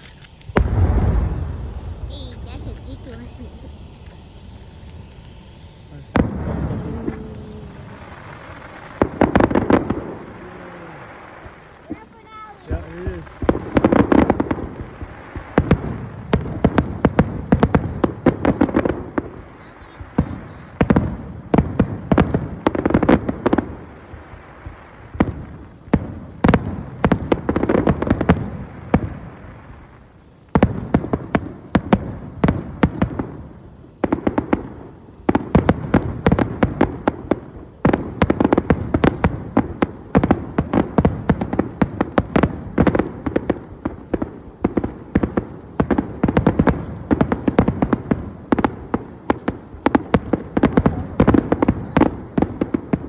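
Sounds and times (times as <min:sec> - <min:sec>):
fireworks bursting: 0:00.0 - 0:53.0.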